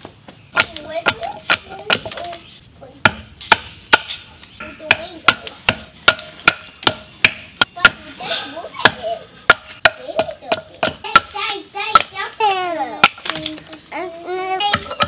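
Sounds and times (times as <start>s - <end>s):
hatchet chopping log: 0.5s - 2.2s, 3.0s - 4.2s, 4.9s - 8.0s, 8.8s - 12.1s.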